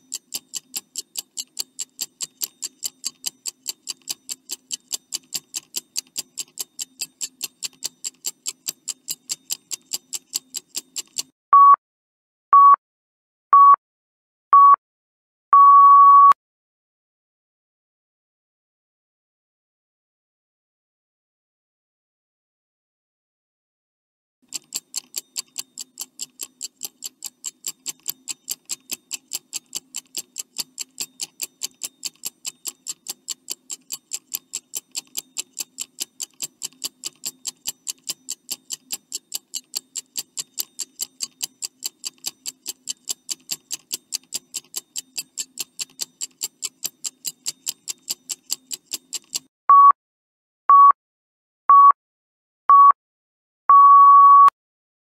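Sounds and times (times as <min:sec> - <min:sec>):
clock ticking fast: 0:00.0 - 0:11.3, 0:24.4 - 0:49.5.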